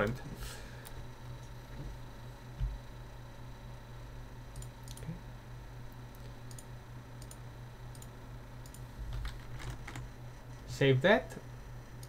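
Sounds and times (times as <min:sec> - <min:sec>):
steady low hum: 0:00.0 - 0:12.0
computer mouse clicking: 0:04.5 - 0:05.1, 0:06.1 - 0:10.0.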